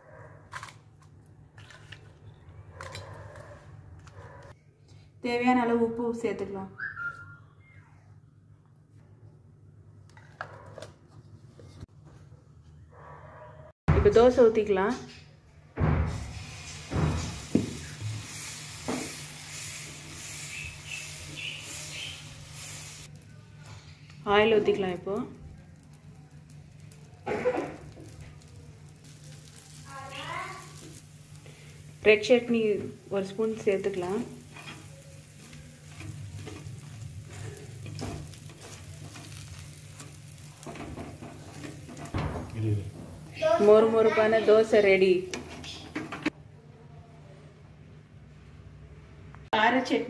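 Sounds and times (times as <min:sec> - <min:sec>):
batter sizzling on a hot pan: 0:16.1 - 0:46.3
metal spoon scraping pan: 0:34.4 - 0:37.0.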